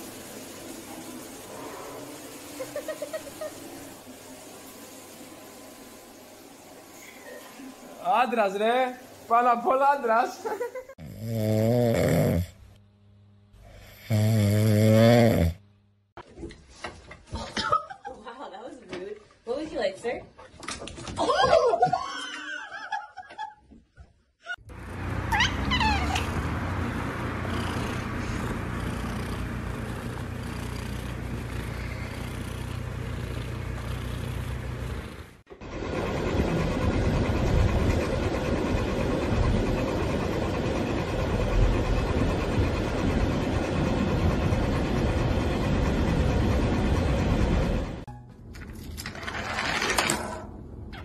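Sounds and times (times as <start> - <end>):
cat purring: 26.3 - 35.4.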